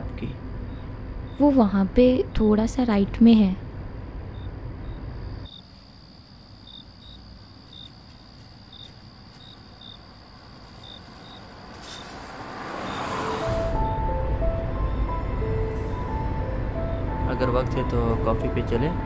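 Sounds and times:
crickets chirping: 0.1s - 19.0s
high insect trill: 0.6s - 14.1s
car approaching: 9.0s - 19.0s.

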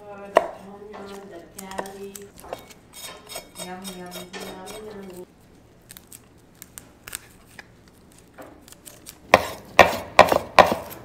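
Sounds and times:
knife chopping on wooden board: 0.3s - 4.9s, 9.3s - 11.0s.

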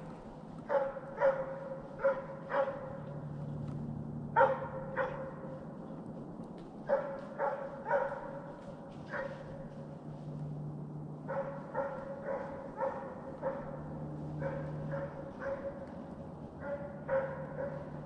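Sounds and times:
hound barking: 0.6s - 3.4s, 4.3s - 5.7s, 6.8s - 9.9s, 11.2s - 18.0s.

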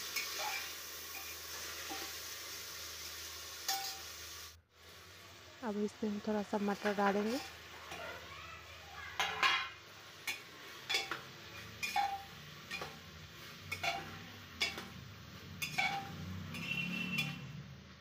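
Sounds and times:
metal ladle clinking in pot: 9.2s - 11.2s, 11.8s - 13.0s, 13.7s - 14.9s, 15.6s - 17.5s.

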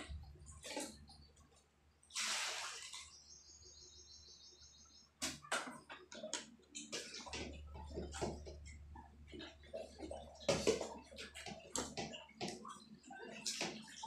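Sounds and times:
water splashing in basin: 2.1s - 3.3s.

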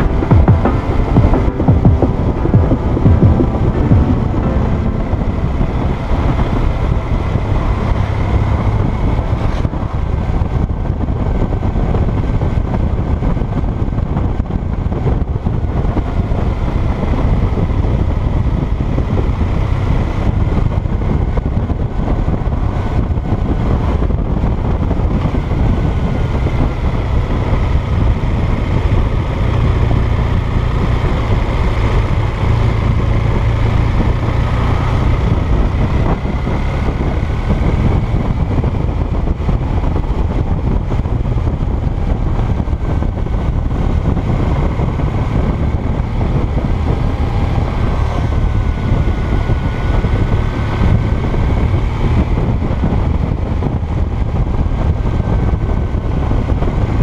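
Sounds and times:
motorcycle engine running: 0.0s - 57.0s
wind and road noise: 0.0s - 57.0s.

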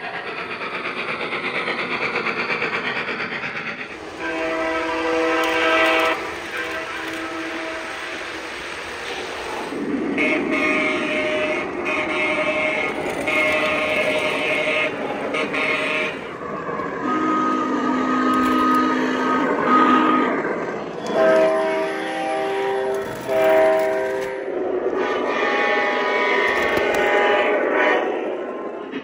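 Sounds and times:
model trains running on track: 0.0s - 29.0s
model train diesel horn blasts: 4.2s - 8.6s, 10.2s - 16.3s, 17.0s - 20.4s, 21.0s - 28.3s.

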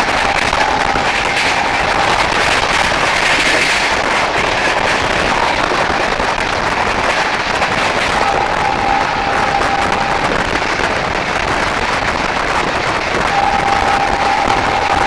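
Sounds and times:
train wheels rattling on rails: 0.0s - 15.0s.

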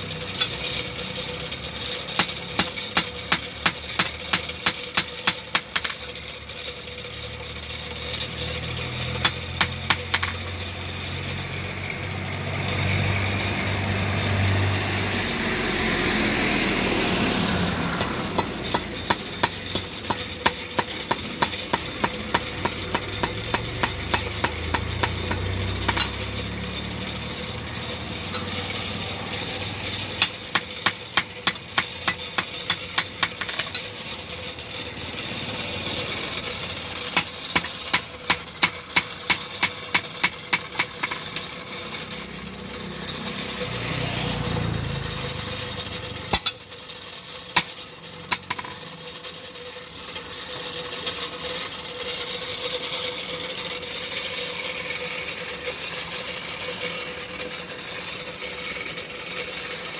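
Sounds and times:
steady engine hum: 0.0s - 59.9s
hammer striking metal on anvil: 2.1s - 6.2s, 9.1s - 10.6s, 17.8s - 26.6s, 30.1s - 33.9s, 37.1s - 41.5s, 46.3s - 46.7s, 47.5s - 48.8s
louder engine noise: 7.1s - 38.8s, 40.6s - 49.0s.

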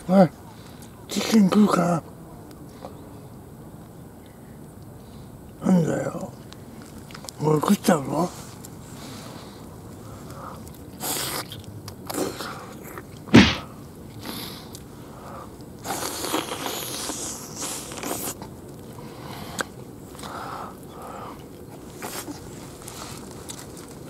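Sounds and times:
sharp knock: 13.3s - 13.7s.

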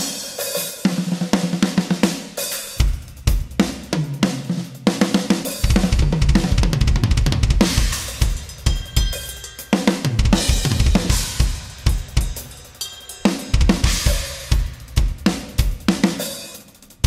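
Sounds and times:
acoustic drum kit played hard: 0.0s - 17.0s
crash cymbals ringing: 7.9s - 14.8s.

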